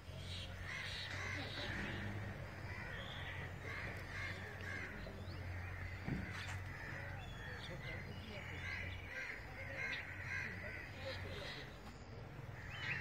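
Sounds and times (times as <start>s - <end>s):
birds calling: 0.0s - 13.0s.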